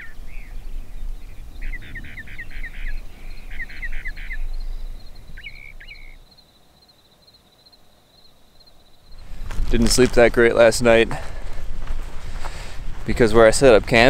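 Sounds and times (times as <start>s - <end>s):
small bird chirping: 0.0s - 9.4s
faint insect trill: 1.8s - 9.8s.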